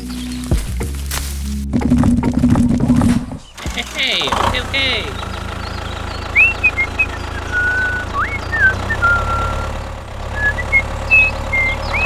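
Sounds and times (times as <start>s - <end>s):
tractor engine idling: 1.7s - 12.0s
high whistled chirps: 4.3s - 12.0s.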